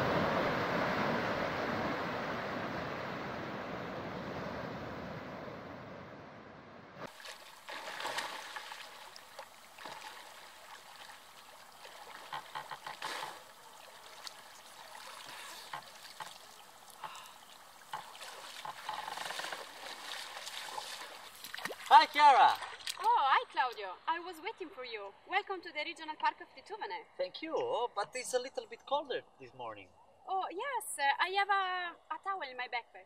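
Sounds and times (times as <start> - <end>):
sea surf rushing: 0.0 - 9.2
person swimming and splashing: 7.1 - 23.1.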